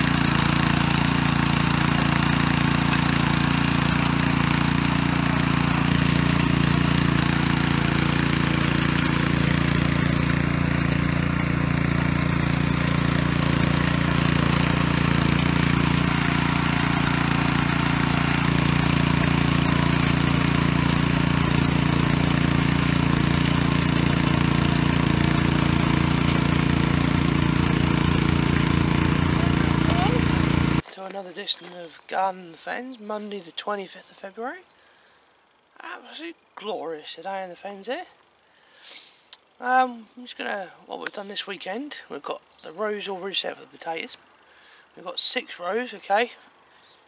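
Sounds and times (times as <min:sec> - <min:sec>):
garden tiller engine running: 0:00.0 - 0:31.0.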